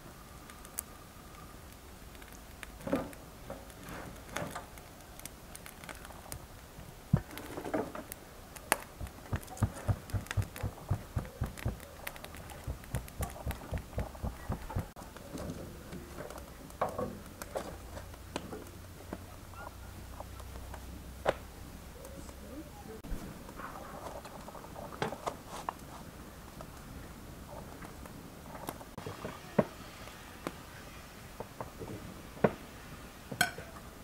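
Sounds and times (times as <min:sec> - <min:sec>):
fingertips patting soft dough: 0:08.6 - 0:15.0.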